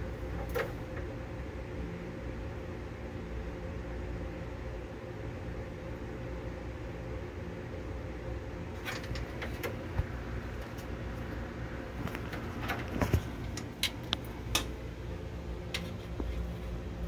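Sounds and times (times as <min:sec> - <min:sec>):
low mechanical hum: 0:00.0 - 0:17.0
sharp clicks and light taps: 0:12.0 - 0:14.7.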